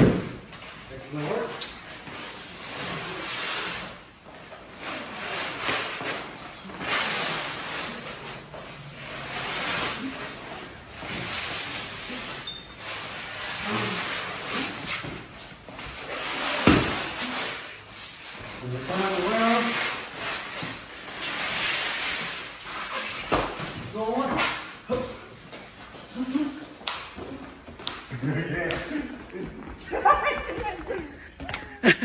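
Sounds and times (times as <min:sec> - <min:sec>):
stretch wrap hissing and crackling: 0:00.4 - 0:26.8.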